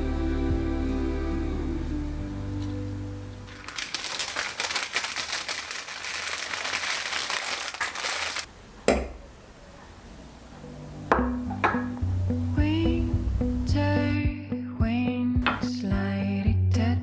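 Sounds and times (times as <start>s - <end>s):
soft music: 0.0s - 3.6s, 10.6s - 17.0s
dense crinkling and rustling: 3.5s - 8.5s.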